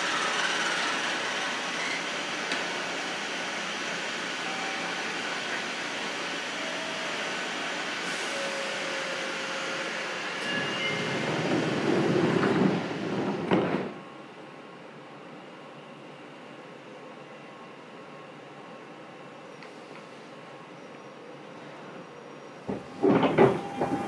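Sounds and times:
train cabin rush: 0:07.3 - 0:14.3, 0:22.6 - 0:24.0
train rumble: 0:07.7 - 0:14.3, 0:22.6 - 0:24.0.

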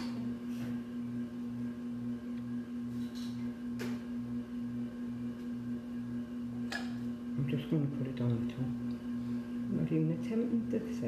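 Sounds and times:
appliance electrical hum: 0:00.0 - 0:11.0.

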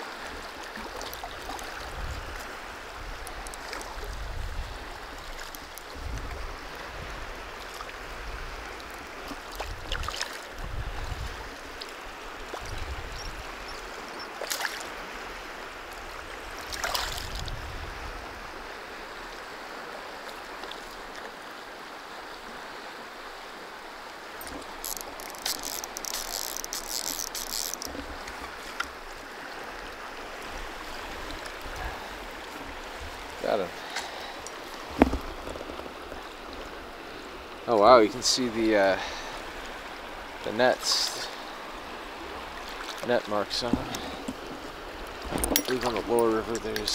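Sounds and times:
river water rushing: 0:00.0 - 0:46.9
short high-pitched rattle: 0:24.4 - 0:27.9.

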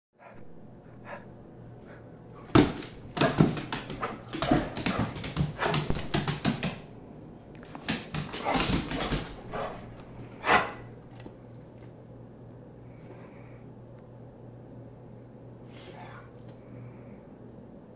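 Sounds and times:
dog barking: 0:10.4 - 0:10.9.

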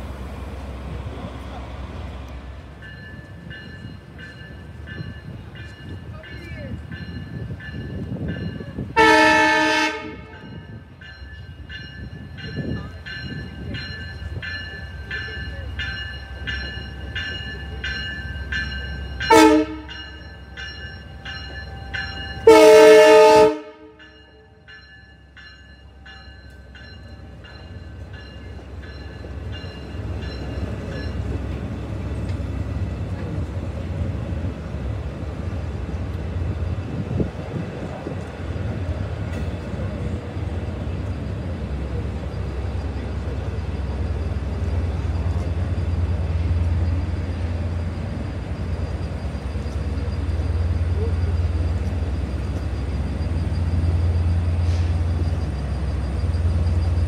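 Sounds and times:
diesel train rumbling: 0:00.0 - 0:57.0
crossing warning bell ringing: 0:02.5 - 0:57.0
train horn blasts: 0:09.0 - 0:10.6, 0:19.3 - 0:20.0, 0:22.4 - 0:24.1.

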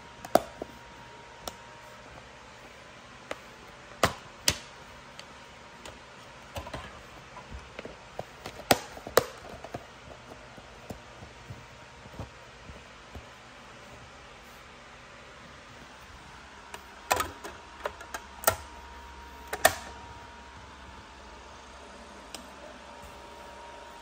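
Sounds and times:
plastic cases clicking and tapping: 0:05.8 - 0:12.3.

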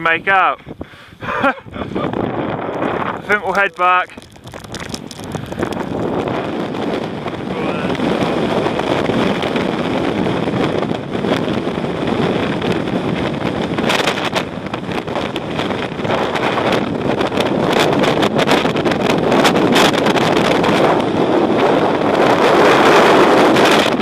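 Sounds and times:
strong wind buffeting microphone: 0:00.0 - 0:24.0.

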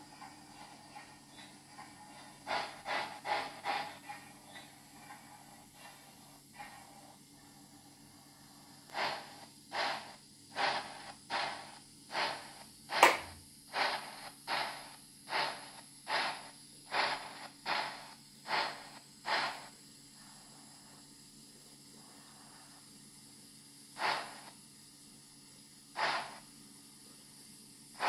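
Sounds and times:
model steam locomotive chuffing: 0:00.0 - 0:21.2, 0:21.9 - 0:24.6, 0:25.5 - 0:28.0
sharp click: 0:13.0 - 0:13.4.

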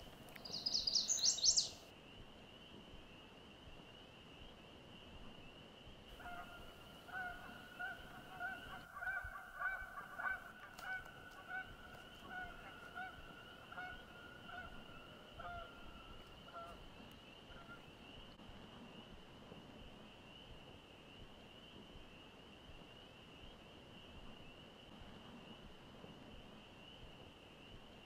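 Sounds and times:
geese honking: 0:06.2 - 0:16.8.

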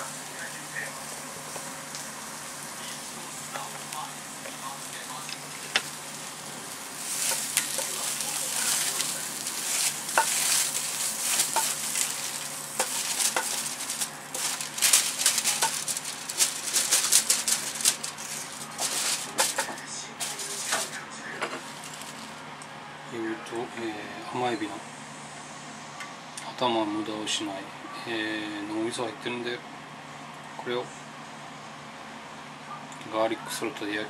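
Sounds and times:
hot pan sizzling: 0:00.0 - 0:21.0, 0:21.6 - 0:22.4
foil rustling: 0:00.0 - 0:22.4
spatula scraping on foil: 0:05.4 - 0:21.0, 0:21.6 - 0:22.4.

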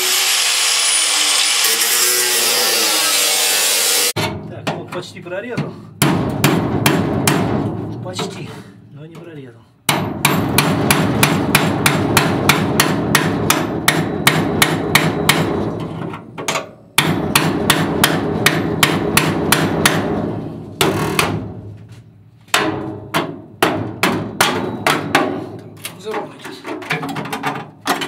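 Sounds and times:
hammer striking chisel on metal: 0:09.9 - 0:15.6, 0:16.4 - 0:20.1, 0:22.5 - 0:25.5.

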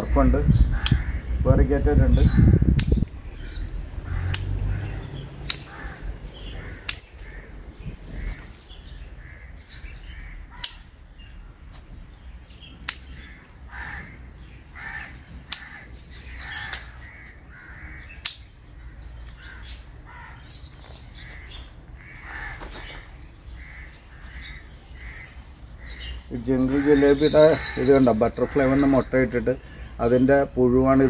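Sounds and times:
bird calling: 0:00.0 - 0:31.0
pruning shears snipping: 0:00.8 - 0:01.0, 0:02.7 - 0:03.2, 0:04.1 - 0:07.4, 0:10.5 - 0:11.0, 0:12.8 - 0:13.6, 0:15.4 - 0:17.2, 0:18.1 - 0:18.6.

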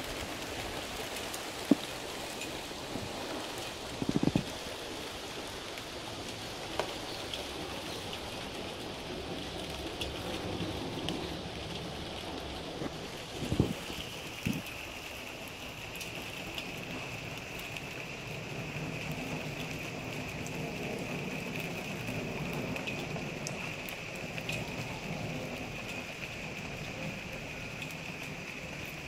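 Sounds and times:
steady rain falling: 0:00.0 - 0:29.0.

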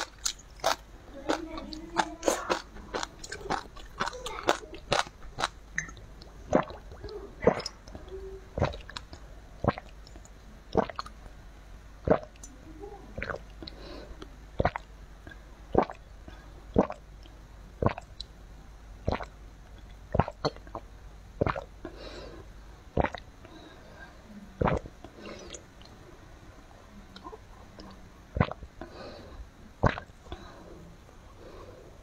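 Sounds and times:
faint slurping: 0:00.0 - 0:11.2, 0:23.0 - 0:26.0
person swallowing: 0:02.2 - 0:10.0, 0:10.7 - 0:11.2, 0:12.0 - 0:12.5, 0:14.6 - 0:17.0, 0:19.1 - 0:19.3, 0:21.4 - 0:21.7, 0:23.0 - 0:23.3, 0:24.6 - 0:25.7, 0:29.8 - 0:30.1.

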